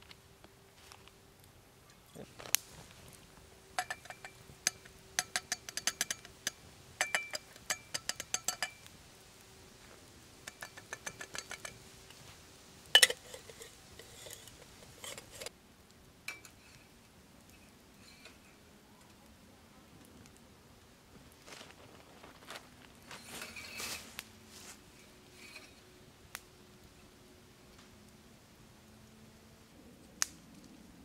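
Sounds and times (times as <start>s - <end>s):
metallic and glassy clinks: 3.8s - 8.9s, 13.0s - 15.5s.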